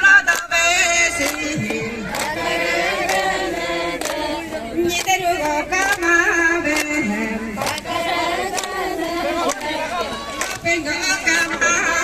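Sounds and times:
group of voices chanting: 1.1s - 5.0s, 7.0s - 12.0s.

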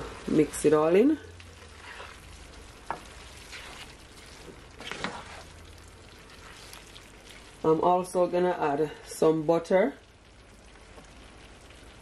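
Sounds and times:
food sizzling in a skillet: 0.0s - 12.0s
spatula scraping pan: 1.6s - 5.6s.

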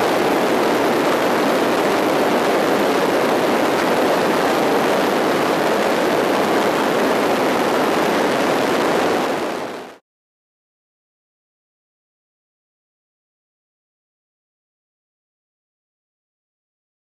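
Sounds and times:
propeller aircraft engine: 0.0s - 10.0s.

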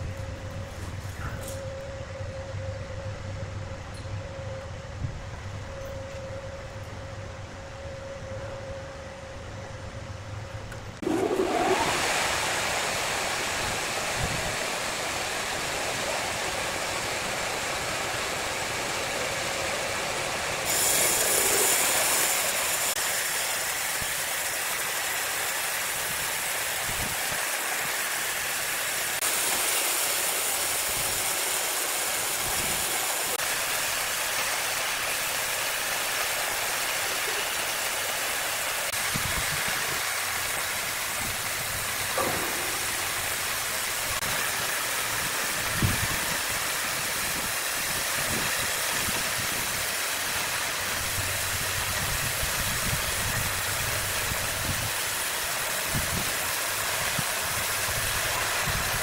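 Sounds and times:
sawmill machine running: 0.0s - 59.0s
band saw cutting log: 11.0s - 19.5s, 20.6s - 49.3s.

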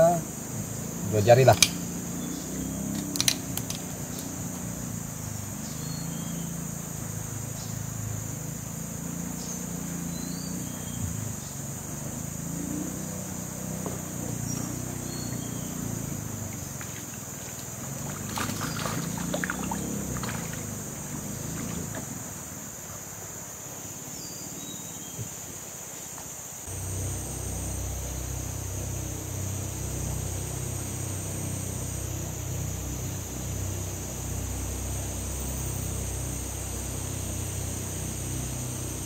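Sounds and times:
boat engine humming: 0.0s - 23.5s, 26.7s - 39.0s
insects droning: 0.0s - 39.0s
water splashing: 16.4s - 22.5s.

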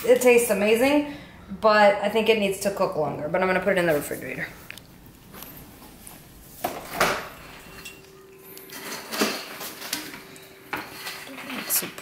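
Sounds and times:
faint steady hum: 0.0s - 12.0s
refrigerator door and shelves clattering: 6.6s - 7.6s, 8.8s - 12.0s.

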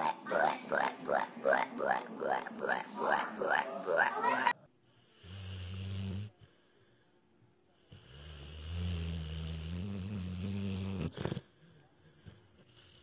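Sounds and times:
dog snoring: 5.1s - 6.5s, 7.9s - 13.0s.

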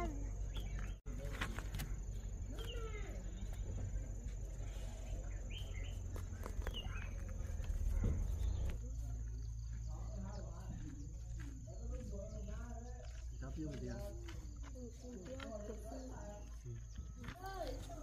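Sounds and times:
bird calls: 0.0s - 18.0s
low rumble: 3.4s - 11.3s.

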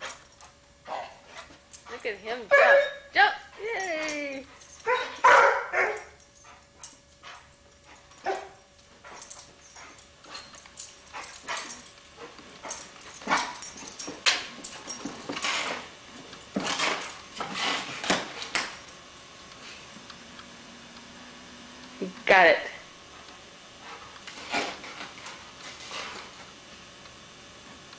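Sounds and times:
dog jumping and breathing: 3.4s - 18.9s.

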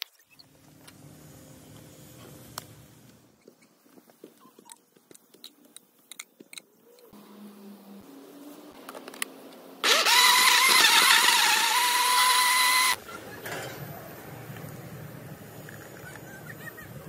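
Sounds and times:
blender motor running: 9.8s - 13.0s.

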